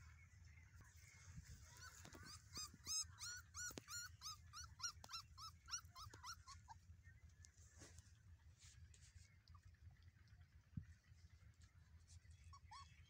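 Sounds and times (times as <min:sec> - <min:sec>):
puppy whimpering: 0:01.7 - 0:06.8.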